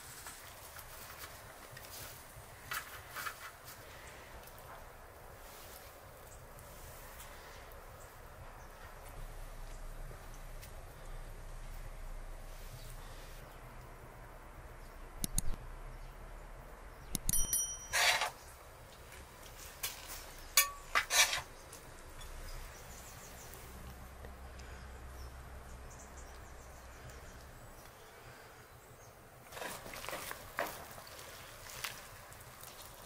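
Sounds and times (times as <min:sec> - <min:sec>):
metal spoon clinking on tray: 0:17.3 - 0:18.3, 0:20.6 - 0:21.4.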